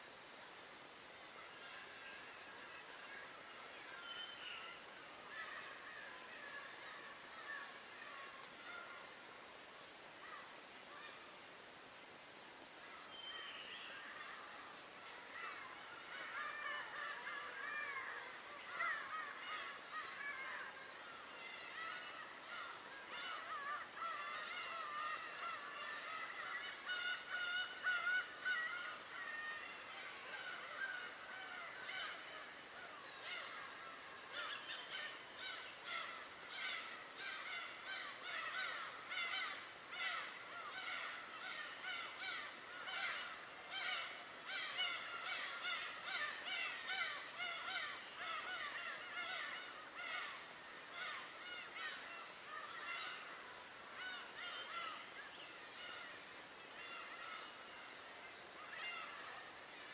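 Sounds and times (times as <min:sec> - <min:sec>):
flock of birds calling: 0:12.9 - 0:59.9.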